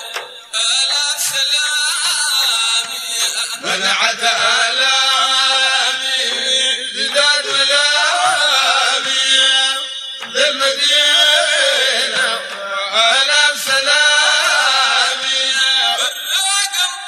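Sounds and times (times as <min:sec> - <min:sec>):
music: 0:00.0 - 0:12.7
men chanting: 0:00.0 - 0:17.0.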